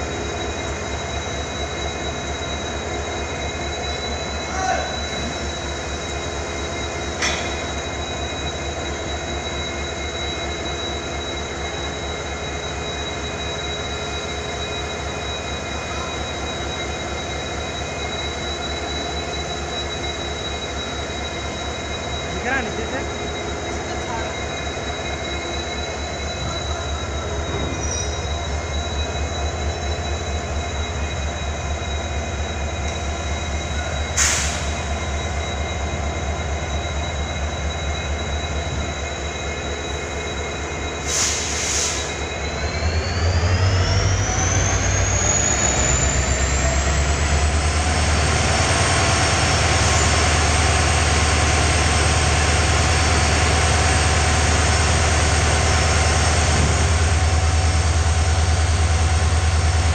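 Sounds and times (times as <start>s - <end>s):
diesel locomotive idling: 0.0s - 59.9s
air hissing: 34.2s - 34.8s, 41.0s - 42.1s.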